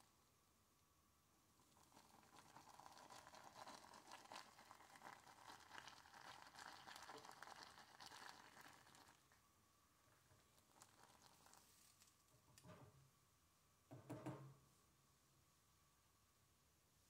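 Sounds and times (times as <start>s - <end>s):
whisk stirring thick soup: 1.7s - 9.2s, 10.6s - 11.7s.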